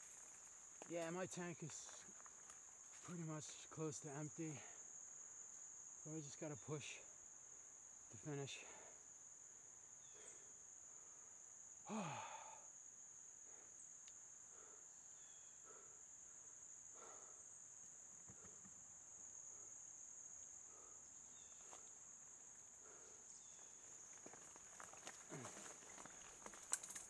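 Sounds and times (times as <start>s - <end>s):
insects chirping: 0.0s - 27.0s.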